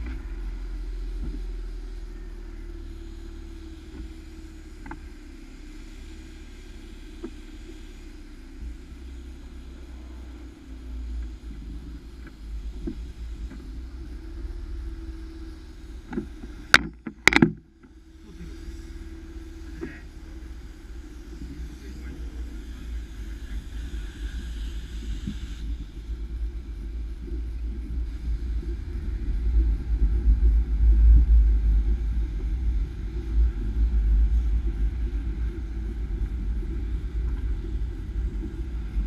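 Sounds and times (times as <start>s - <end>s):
car engine idling: 0.0s - 39.0s.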